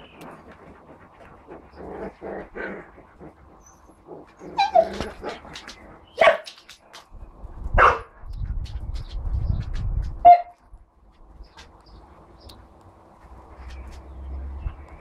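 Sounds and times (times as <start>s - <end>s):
dog barking: 6.2s - 6.5s, 7.8s - 8.1s, 10.2s - 10.6s.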